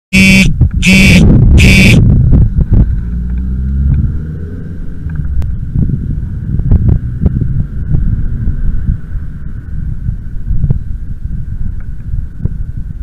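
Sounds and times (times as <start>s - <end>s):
short electronic beeps: 0.1s - 2.0s
wind and road rumble: 0.1s - 13.0s.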